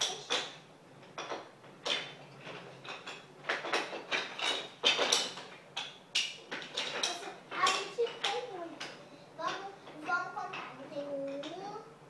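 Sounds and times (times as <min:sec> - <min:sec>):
toy pieces clacking: 0:00.0 - 0:00.6.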